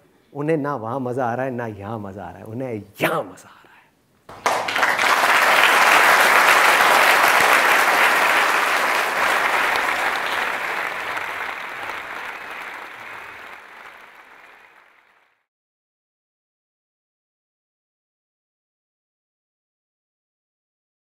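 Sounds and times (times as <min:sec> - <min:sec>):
audience applauding: 0:04.3 - 0:15.4.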